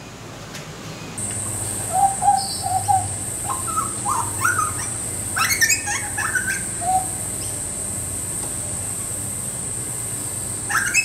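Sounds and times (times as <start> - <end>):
young bird singing: 1.8 - 7.6, 10.7 - 11.0.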